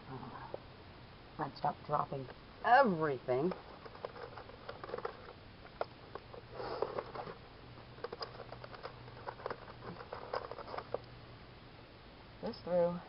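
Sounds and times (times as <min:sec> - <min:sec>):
soft rustling of hardware: 0:03.3 - 0:11.2.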